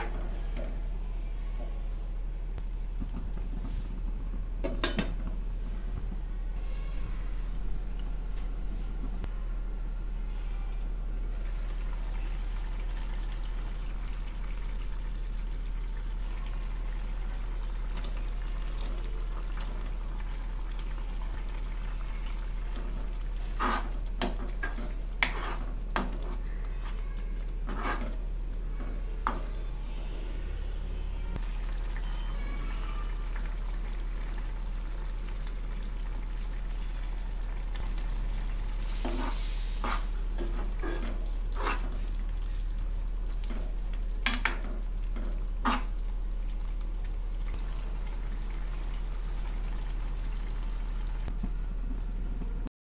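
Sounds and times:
low electrical hum: 0:00.0 - 0:52.7
curry simmering hiss: 0:10.2 - 0:30.4, 0:31.4 - 0:51.4.

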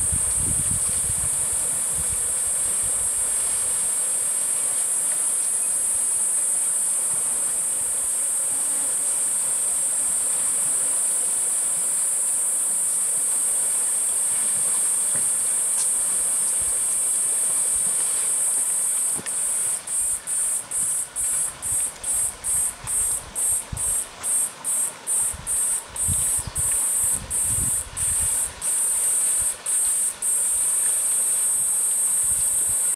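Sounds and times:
cicadas buzzing: 0:00.0 - 0:32.9.

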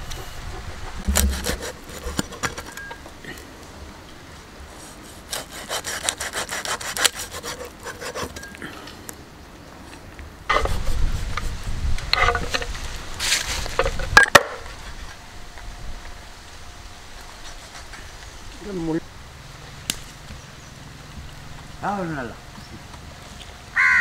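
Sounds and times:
knife scraping chopping block: 0:01.0 - 0:02.9, 0:05.2 - 0:08.6
sharp knocks: 0:01.0 - 0:02.9
knife sawing through fish: 0:01.1 - 0:02.5, 0:05.1 - 0:08.4.

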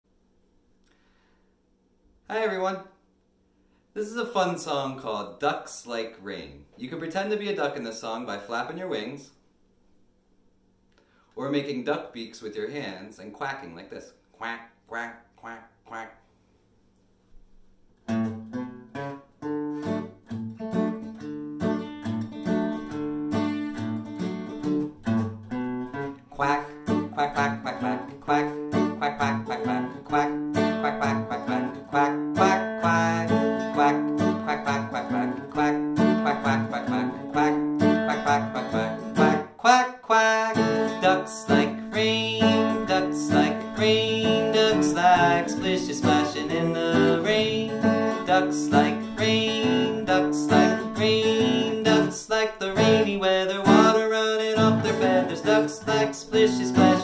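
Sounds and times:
acoustic guitar strumming: 0:18.0 - 0:57.0
man singing: 0:26.3 - 0:57.0.

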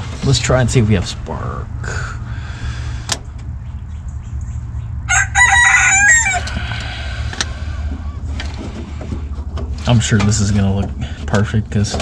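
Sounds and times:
low rumble: 0:00.0 - 0:09.8
rooster crowing: 0:05.0 - 0:08.4.

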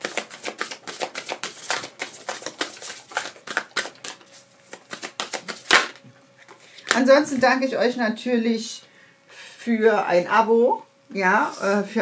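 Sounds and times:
cards being shuffled: 0:00.0 - 0:06.0.

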